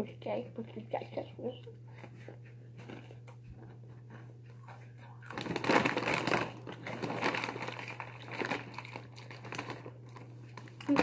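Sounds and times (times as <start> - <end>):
plastic bag crinkling: 5.2 - 11.0.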